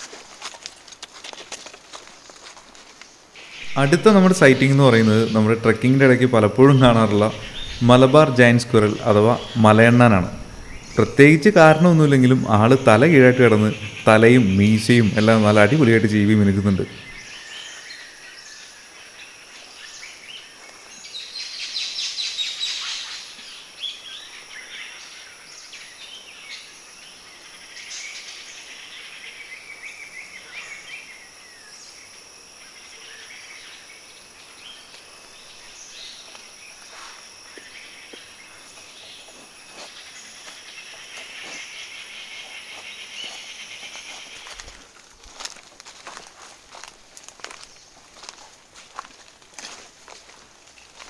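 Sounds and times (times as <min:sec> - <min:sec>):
rapid trilling bird call: 0:03.4 - 0:15.6
bird calls: 0:03.4 - 0:44.9
high-pitched insect drone: 0:03.4 - 0:51.0.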